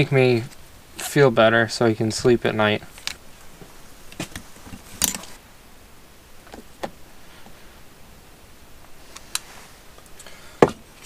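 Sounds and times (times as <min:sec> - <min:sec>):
soft rustle of handling: 0:08.8 - 0:11.0.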